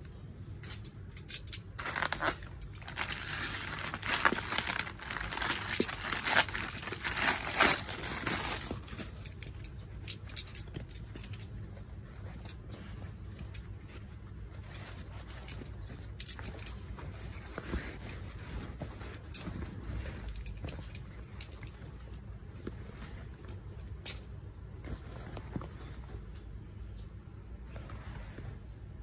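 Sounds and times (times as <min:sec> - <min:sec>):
cloth rustling: 0:00.0 - 0:26.4, 0:27.6 - 0:29.0
plastic bag crinkling: 0:01.8 - 0:09.2.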